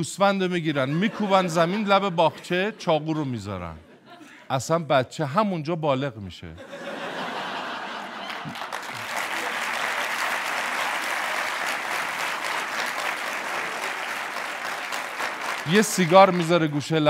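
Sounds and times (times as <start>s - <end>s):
audience clapping: 7.6s - 17.0s.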